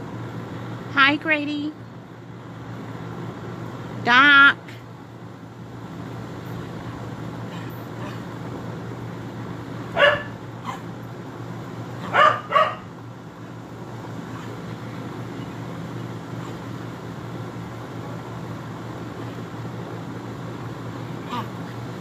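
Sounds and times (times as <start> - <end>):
steady low hum: 0.0 - 22.0
dog barking: 10.0 - 10.8, 12.0 - 12.9.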